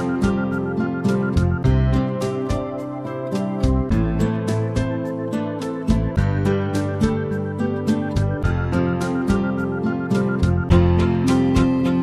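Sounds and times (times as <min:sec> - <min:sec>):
plucked guitar: 0:00.0 - 0:12.0
steady beat: 0:00.0 - 0:12.0.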